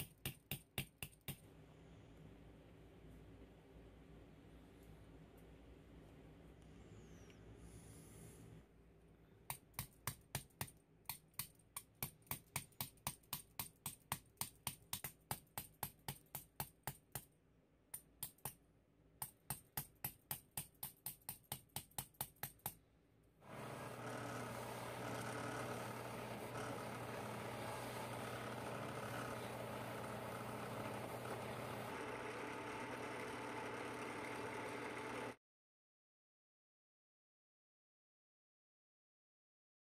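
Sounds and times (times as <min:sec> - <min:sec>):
buffing wheel hum and hiss: 0:23.5 - 0:33.3.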